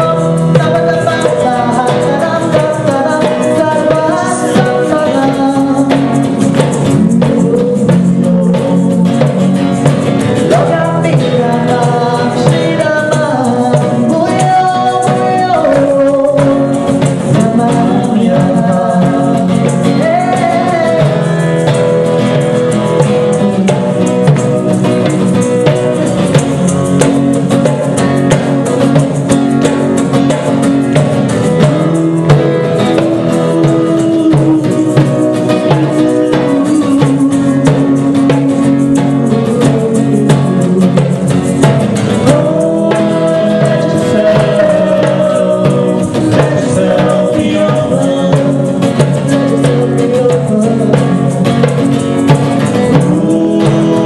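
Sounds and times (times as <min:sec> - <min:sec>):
woman singing into a microphone: 0:00.0 - 0:09.6, 0:10.4 - 0:21.5, 0:32.2 - 0:41.6
strummed acoustic guitar: 0:00.0 - 0:54.0.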